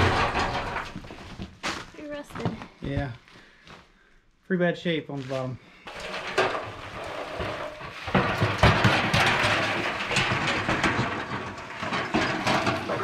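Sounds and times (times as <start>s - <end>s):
steel barrel rolling on floorboards: 0.0s - 2.7s, 5.8s - 13.0s.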